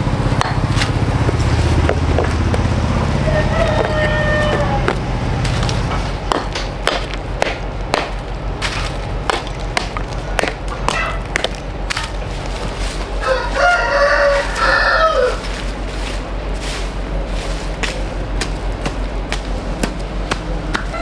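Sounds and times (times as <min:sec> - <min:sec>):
rooster crowing: 0:03.0 - 0:05.1, 0:13.1 - 0:15.6
sharp knocks and clicks: 0:04.5 - 0:12.2.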